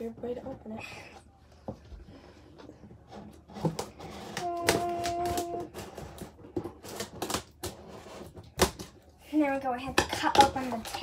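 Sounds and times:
scissors cutting packing tape: 4.3s - 7.8s.

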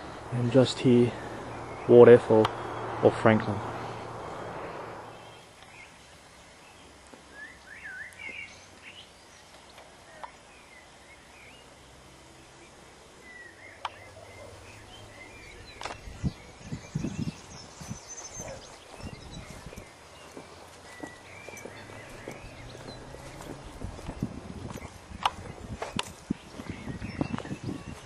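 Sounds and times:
birds chirping: 0.0s - 28.0s
soft low thumps: 21.4s - 28.0s.

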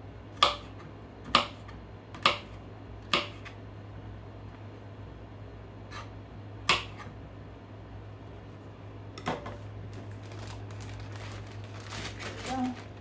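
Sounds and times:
knife chopping on plastic board: 0.4s - 3.6s, 5.9s - 7.1s.

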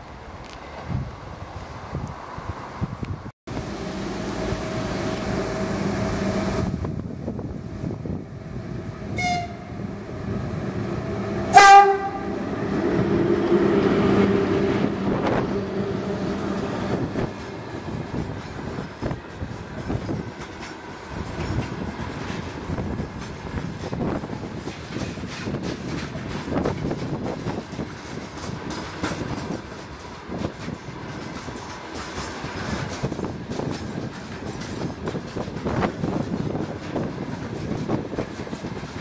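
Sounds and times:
rail rumble: 0.0s - 39.0s
electric locomotive hum: 0.1s - 39.0s
train horn: 9.1s - 9.8s, 11.4s - 12.4s
wagons clattering over rail joints: 15.2s - 39.0s.

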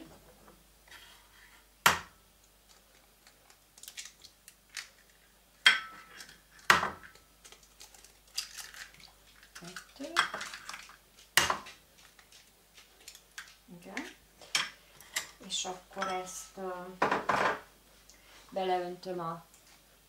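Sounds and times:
eggshell crackling open: 2.4s - 5.4s, 7.1s - 13.6s.

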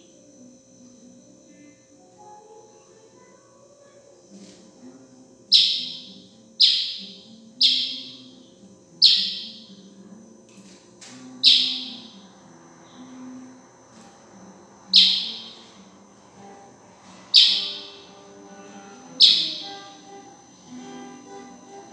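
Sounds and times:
bird giving sharp high chirps: 5.5s - 8.2s, 9.0s - 9.7s, 11.4s - 12.1s, 14.9s - 15.6s, 17.3s - 18.0s, 19.2s - 19.8s.

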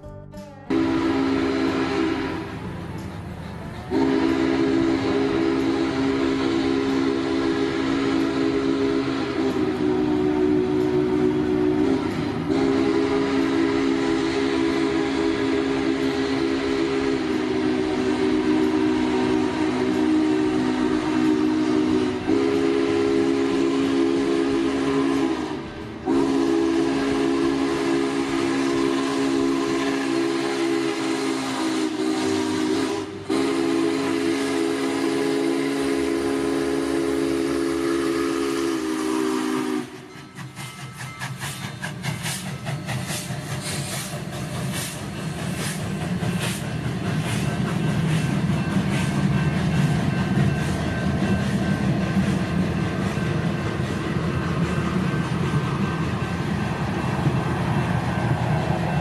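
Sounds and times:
train passing with rhythmic clatter: 0.0s - 59.0s
steam whistle blasts: 0.7s - 2.7s, 3.9s - 40.4s.

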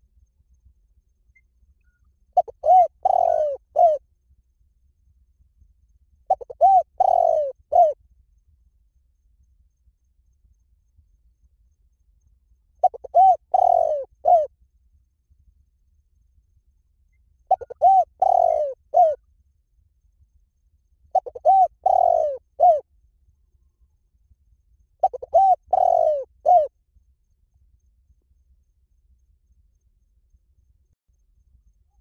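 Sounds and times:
dove cooing: 2.4s - 4.0s, 6.3s - 8.0s, 12.8s - 14.5s, 17.5s - 19.2s, 21.1s - 22.8s, 25.0s - 26.7s.

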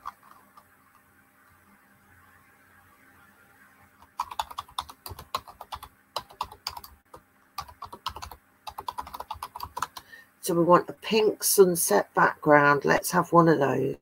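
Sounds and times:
typing on a keyboard: 0.0s - 0.7s, 4.0s - 10.1s.

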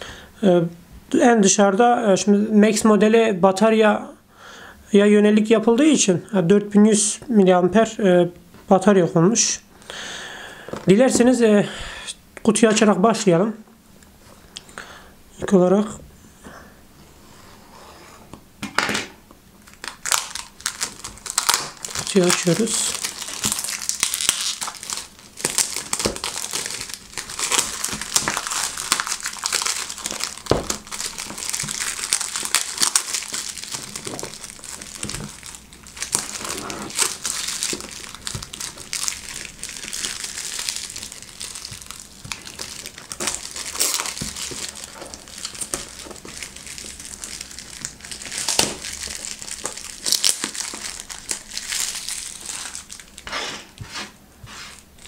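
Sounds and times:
plastic wrap crinkling: 19.6s - 54.1s.

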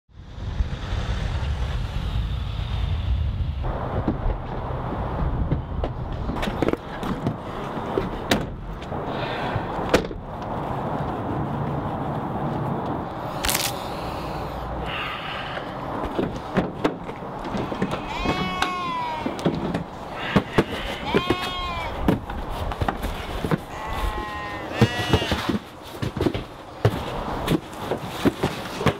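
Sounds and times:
low rumble: 0.1s - 6.4s
street background noise: 0.2s - 28.9s
van doors knocking and clattering: 5.4s - 8.6s, 9.9s - 10.2s, 16.0s - 20.7s.

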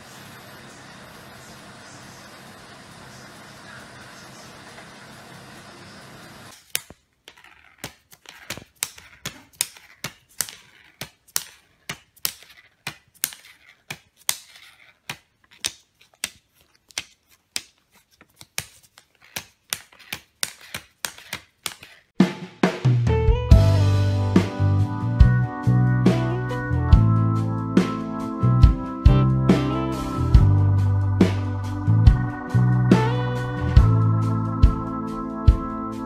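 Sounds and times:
cat licking plastic banknotes: 6.5s - 22.1s
crisp clicks and crackles: 6.5s - 22.1s.

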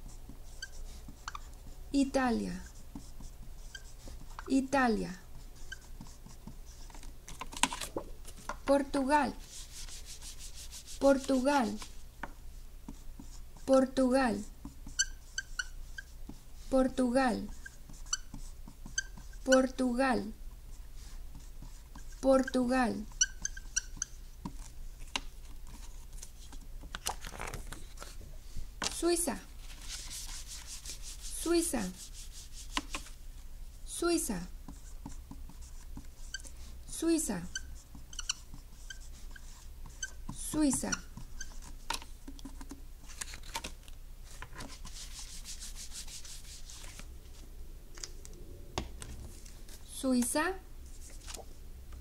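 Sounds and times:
marker squeaking on whiteboard: 0.0s - 12.0s, 12.9s - 26.8s, 29.9s - 33.1s, 34.1s - 42.8s
paper rustling: 6.7s - 8.6s, 25.0s - 28.2s, 29.6s - 31.9s, 41.5s - 47.4s, 50.9s - 51.6s.

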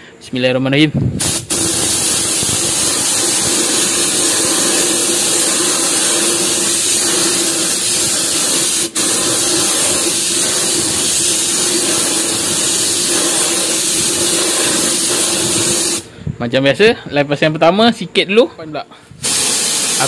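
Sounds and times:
spray gun hissing: 1.2s - 16.1s, 19.2s - 20.0s.

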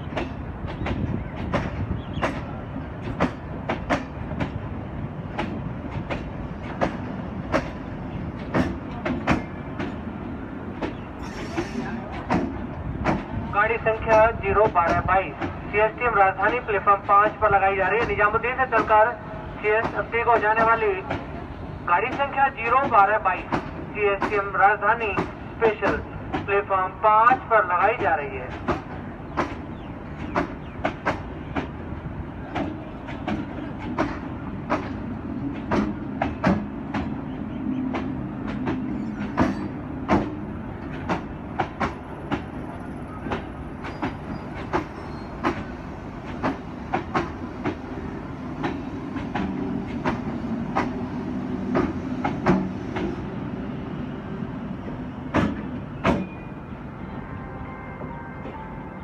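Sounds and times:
wheels clacking over rail joints: 0.0s - 10.1s, 28.0s - 37.2s, 37.8s - 53.4s
train rumbling past: 0.0s - 59.0s.

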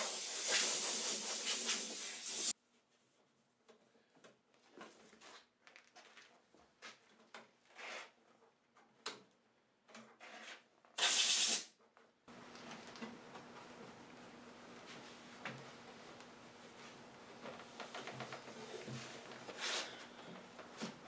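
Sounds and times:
air blow gun puffs: 0.0s - 2.5s, 11.0s - 11.7s.

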